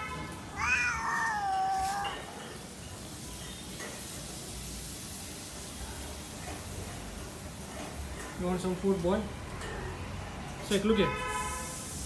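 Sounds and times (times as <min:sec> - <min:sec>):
cat meowing: 0:00.5 - 0:02.4.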